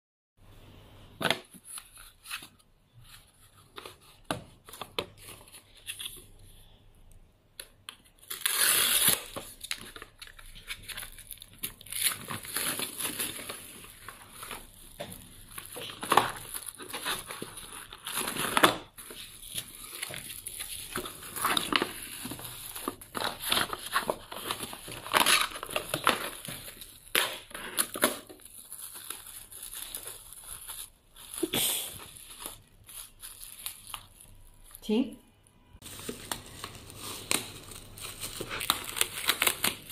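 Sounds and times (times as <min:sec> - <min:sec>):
cling film crinkling: 0:08.2 - 0:34.8, 0:35.8 - 0:39.9.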